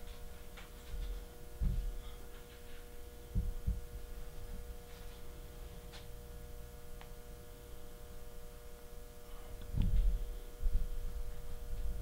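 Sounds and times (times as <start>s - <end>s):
electrical hum: 0.0s - 12.0s
dull low thumps: 1.6s - 2.0s, 3.3s - 4.0s.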